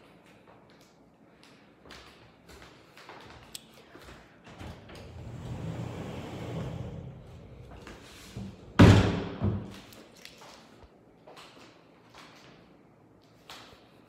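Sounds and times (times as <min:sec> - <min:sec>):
sliding door rumbling on track: 0:05.0 - 0:07.7
door thud: 0:08.8 - 0:09.7.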